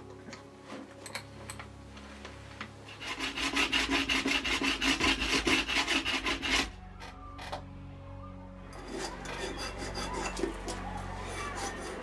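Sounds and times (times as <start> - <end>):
hand tool scraping metal: 2.9 - 6.8, 8.7 - 12.0.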